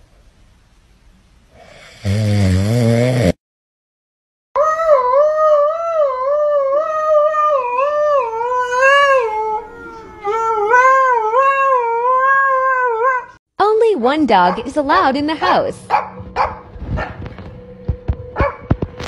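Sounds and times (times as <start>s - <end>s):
dog howling: 4.6s - 13.4s.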